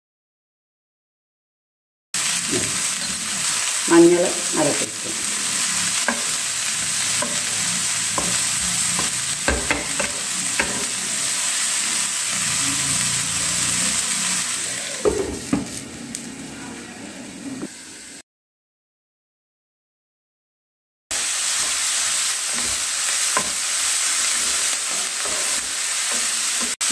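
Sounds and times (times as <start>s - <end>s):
leaves sizzling in oil: 2.2s - 18.2s, 21.1s - 26.9s
spatula scraping and tapping pan: 5.0s - 6.5s, 7.1s - 11.0s, 22.5s - 26.9s.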